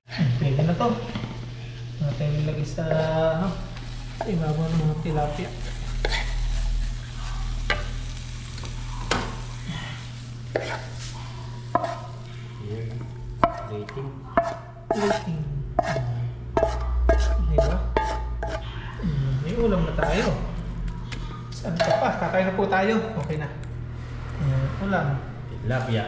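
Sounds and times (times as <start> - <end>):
fish sizzling in a pan: 1.4 - 13.6
utensil knocking and scraping pan: 13.4 - 18.6.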